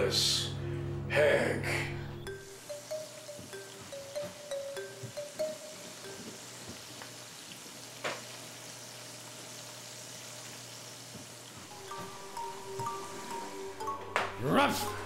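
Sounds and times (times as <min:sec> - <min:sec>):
food sizzling in frying pans: 0:02.5 - 0:13.4.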